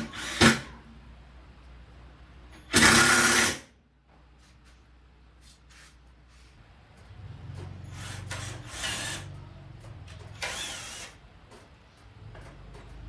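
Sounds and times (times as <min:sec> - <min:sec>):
cordless drill driving screws: 0:08.0 - 0:09.2, 0:10.3 - 0:11.2.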